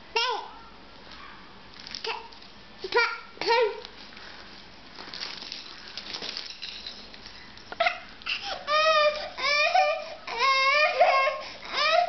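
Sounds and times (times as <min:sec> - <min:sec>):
rustling and scuffling: 0:03.8 - 0:07.8
baby crying: 0:08.3 - 0:12.0.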